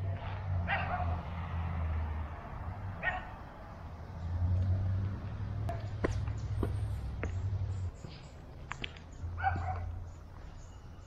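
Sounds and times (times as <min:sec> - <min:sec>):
dog barking: 0:00.6 - 0:01.2, 0:03.0 - 0:03.4, 0:09.4 - 0:10.0.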